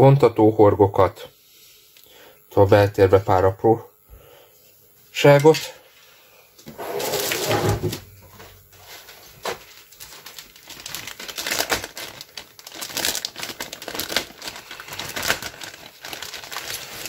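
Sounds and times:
plastic bag crinkling: 0:08.7 - 0:17.0.

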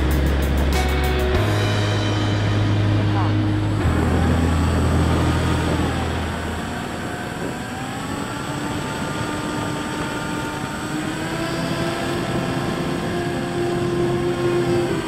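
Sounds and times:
deep hum: 0:00.0 - 0:07.9
wind rushing: 0:00.0 - 0:09.3
electric motor and propeller whine: 0:00.0 - 0:15.0.

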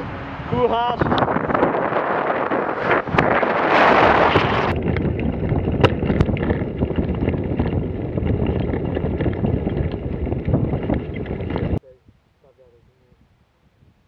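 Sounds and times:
wind buffeting microphone: 0:00.0 - 0:14.0
bicycle tyres on gravel: 0:01.5 - 0:11.8.

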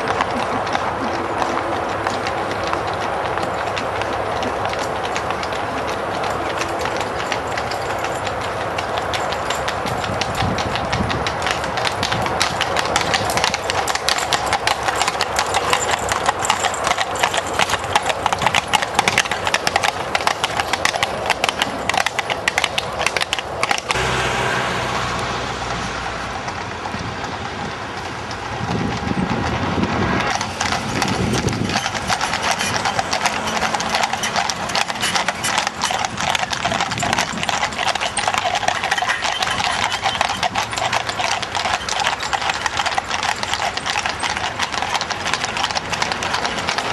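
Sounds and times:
horse hooves clip-clopping on tarmac: 0:00.0 - 0:46.9
smooth steady noise: 0:23.5 - 0:28.6.

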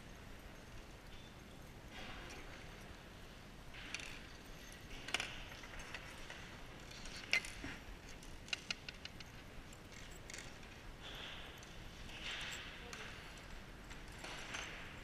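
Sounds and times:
metal bolts and nuts clinking: 0:00.0 - 0:15.0.

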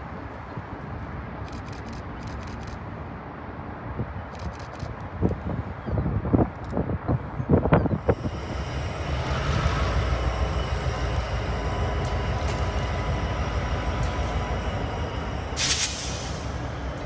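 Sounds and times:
diesel locomotive engine drone: 0:00.0 - 0:17.0
thin steady whine: 0:08.0 - 0:17.0.

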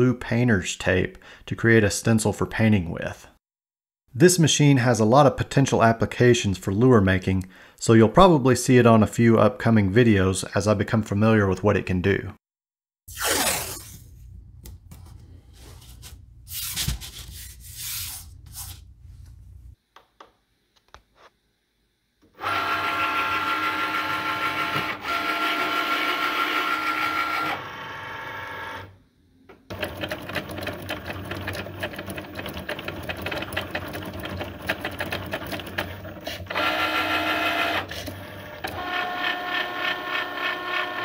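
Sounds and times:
cutting machine motor whine: 0:36.5 - 0:41.0.

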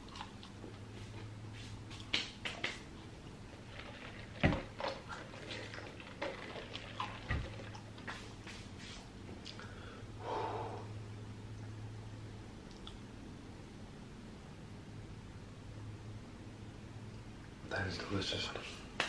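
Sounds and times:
swallowing: 0:03.7 - 0:08.1
breathy exhale: 0:09.6 - 0:11.0
mouth smacks while eating: 0:12.6 - 0:13.1.

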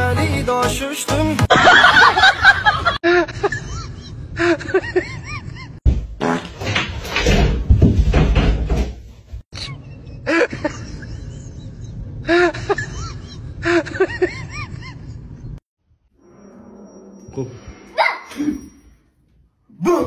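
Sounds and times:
door banging and rattling: 0:05.8 - 0:09.4.

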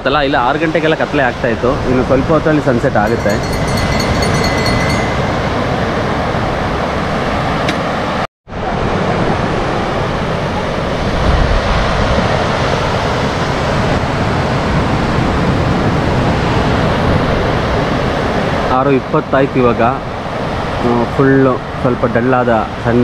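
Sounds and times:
surf breaking on a beach: 0:00.3 - 0:23.0
wind on the microphone: 0:08.6 - 0:18.8.

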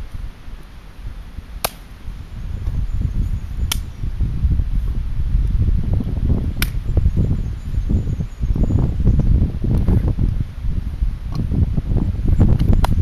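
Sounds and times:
wind rumble on microphone: 0:00.0 - 0:13.0
sharp wood cracks: 0:01.6 - 0:01.9, 0:03.7 - 0:03.9, 0:06.6 - 0:06.8.

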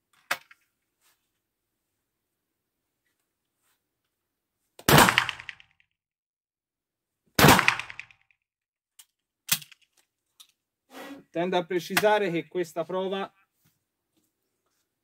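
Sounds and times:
shotgun shots with echo: 0:04.9 - 0:05.6, 0:07.4 - 0:08.1.

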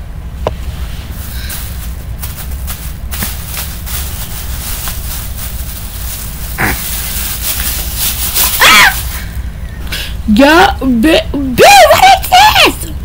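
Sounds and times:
steady low rumble: 0:00.0 - 0:11.6
cloth rustling and handling clicks: 0:01.1 - 0:09.2.

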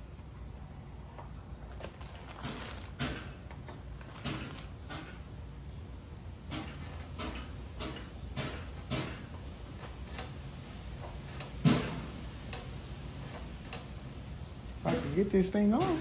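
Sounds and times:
tape snapping: 0:01.2 - 0:05.2
masking tape peeling: 0:01.5 - 0:05.0.

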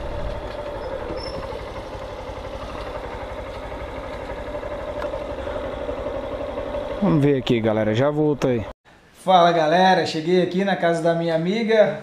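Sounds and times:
motorcycle engine at low revs: 0:00.0 - 0:08.7.

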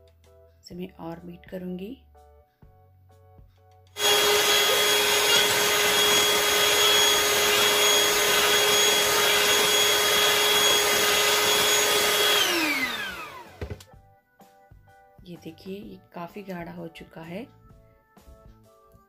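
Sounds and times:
electric hand mixer whining: 0:04.0 - 0:13.8.

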